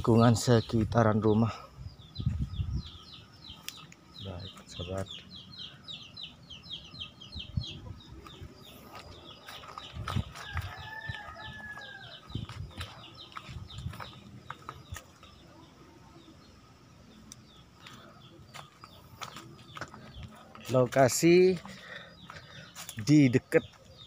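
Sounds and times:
distant rooster crowing: 0:10.0 - 0:12.6.

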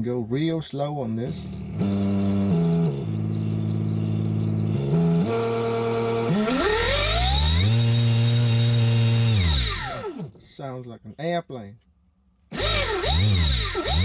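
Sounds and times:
electric motor whine: 0:01.2 - 0:10.3, 0:12.5 - 0:14.0.

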